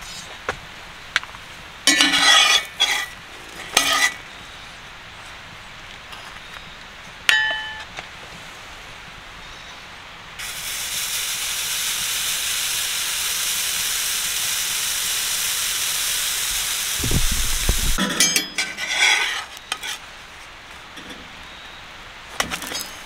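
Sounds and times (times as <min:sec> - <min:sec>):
metal spatula scraping iron: 0:01.9 - 0:04.3, 0:17.4 - 0:20.0
batter sizzling in skillet: 0:10.4 - 0:18.0.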